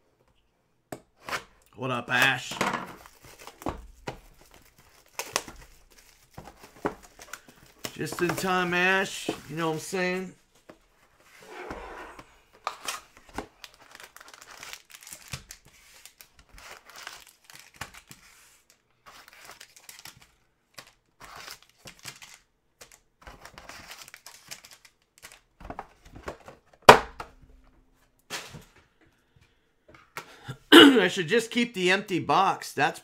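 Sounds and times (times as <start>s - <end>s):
foil card packs rustling: 1.9s - 10.4s, 12.3s - 26.8s
packaging crinkling and tearing: 3.0s - 9.6s, 12.8s - 25.5s.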